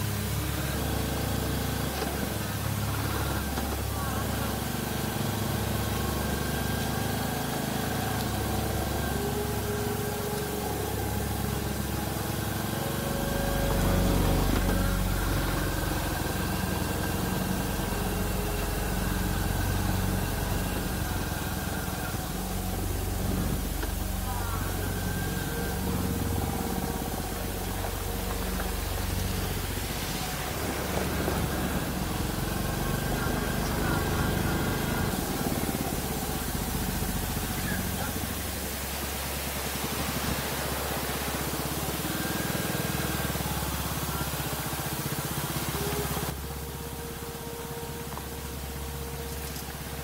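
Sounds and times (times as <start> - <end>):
constant hiss: 0.0 - 50.0
motorcycle engine running: 0.0 - 50.0.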